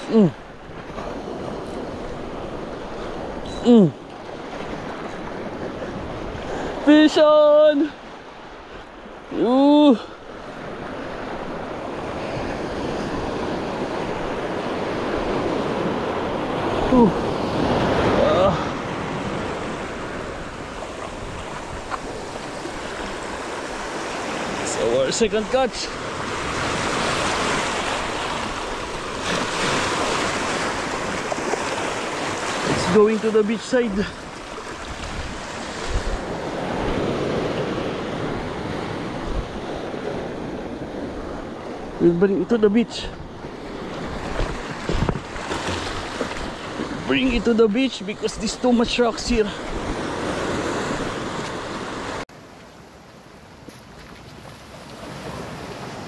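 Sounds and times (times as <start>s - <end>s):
person exclaiming: 0.0s - 0.4s, 3.6s - 4.0s, 9.3s - 10.2s, 16.8s - 17.2s, 18.0s - 18.8s
surf breaking over rocks: 13.1s - 40.4s
small waves over pebbles: 19.3s - 37.8s
wind buffeting microphone: 34.1s - 42.0s, 43.0s - 47.4s.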